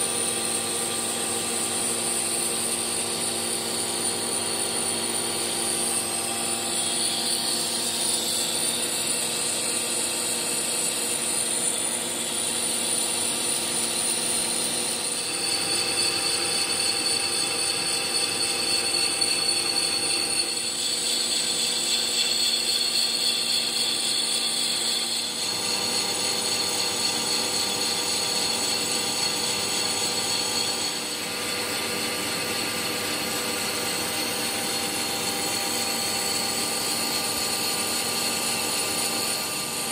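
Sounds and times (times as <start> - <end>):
metal lathe whining: 0.0 - 39.9.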